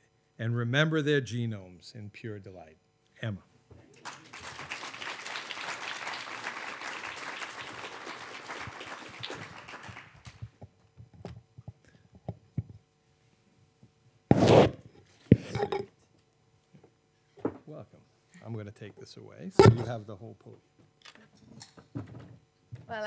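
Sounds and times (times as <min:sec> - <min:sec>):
audience applauding: 0:04.0 - 0:10.6
loud thump: 0:19.6 - 0:20.0.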